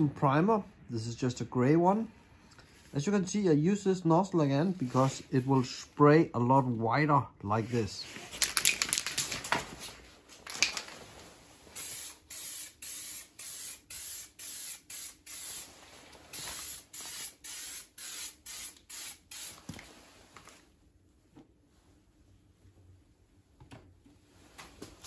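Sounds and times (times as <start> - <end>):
aerosol can rattling clicks: 8.4 - 9.4
aerosol can spraying: 11.8 - 15.7, 16.3 - 19.8.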